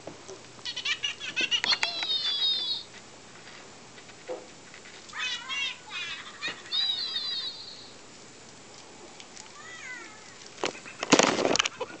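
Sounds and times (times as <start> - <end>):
knocks and rustles: 3.4 - 5.1, 10.6 - 11.8
puppies whining: 5.2 - 8.0.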